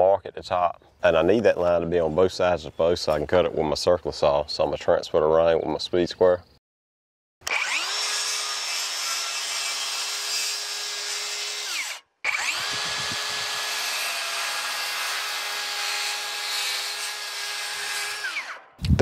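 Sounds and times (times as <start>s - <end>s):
circular saw cutting wood: 7.4s - 18.8s.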